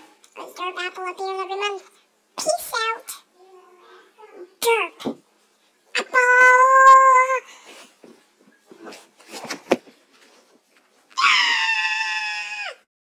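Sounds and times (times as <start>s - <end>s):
high-pitched cartoon voice screaming: 6.0s - 7.4s, 11.2s - 12.9s.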